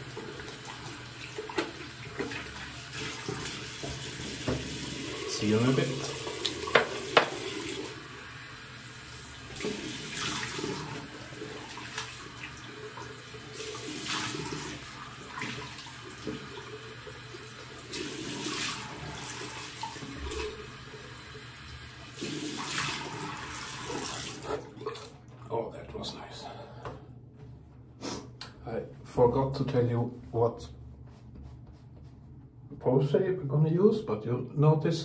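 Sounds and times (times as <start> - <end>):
tap water running into sink: 0.0 - 25.3.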